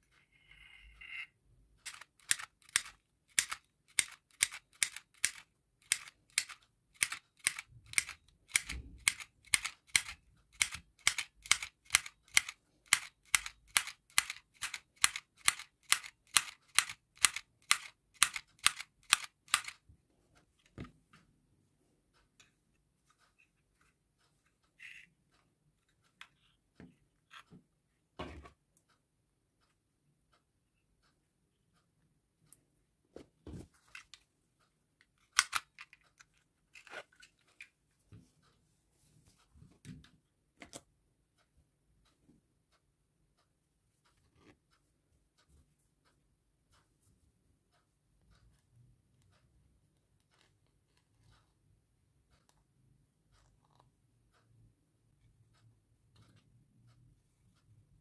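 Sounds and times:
handheld sewing machine clacking: 1.8 - 19.8.

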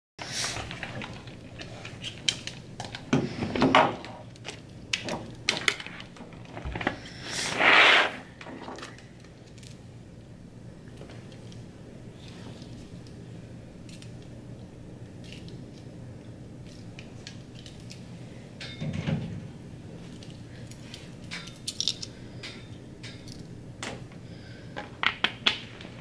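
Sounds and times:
steady low hum: 0.2 - 26.0
plastic parts clicking: 21.2 - 22.1.

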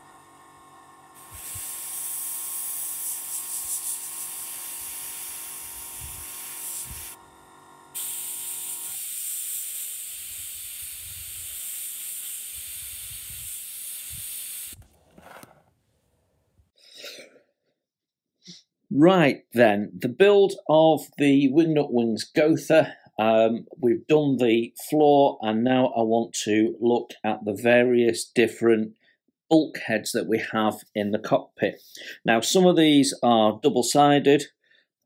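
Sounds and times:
airbrush hissing: 1.2 - 7.2, 7.9 - 14.8.

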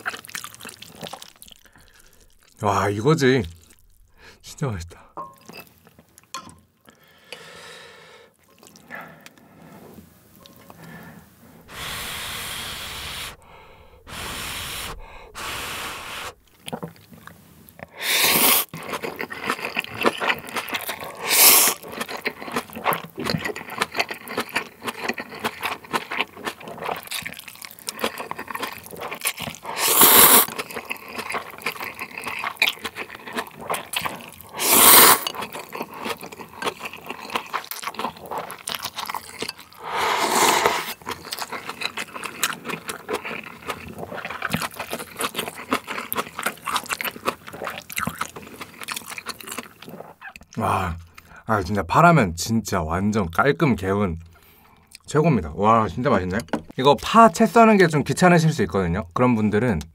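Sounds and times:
person slurping noodles: 11.6 - 16.6, 17.9 - 22.9, 28.0 - 38.5, 39.3 - 48.2
chewing clicks and smacks: 41.0 - 51.3.

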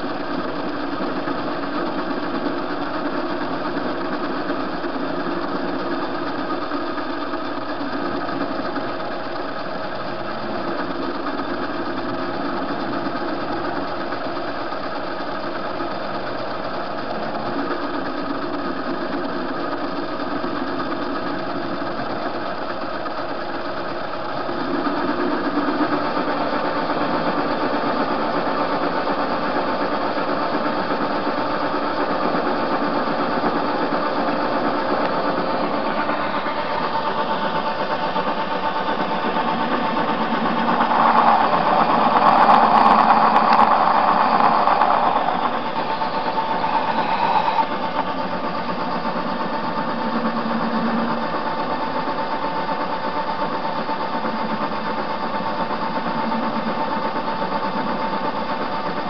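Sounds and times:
metal lathe running: 0.0 - 59.0.

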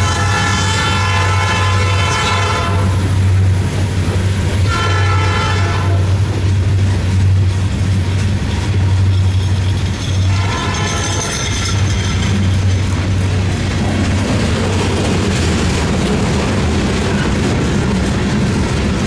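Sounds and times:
locomotive horn blasts: 0.0 - 3.1, 4.6 - 6.2, 10.3 - 11.3
low rumble of train: 0.0 - 19.0.

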